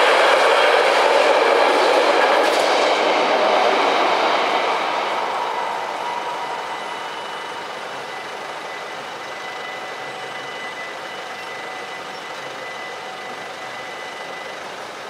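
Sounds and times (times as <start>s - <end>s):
freight train rolling: 0.0s - 15.0s
faint high ringing tones: 3.8s - 15.0s.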